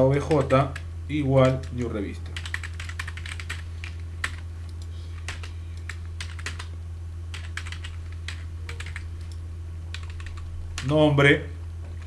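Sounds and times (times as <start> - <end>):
steady low hum: 0.0 - 12.0
typing on a computer keyboard: 0.2 - 0.8, 2.4 - 6.7, 7.3 - 10.9.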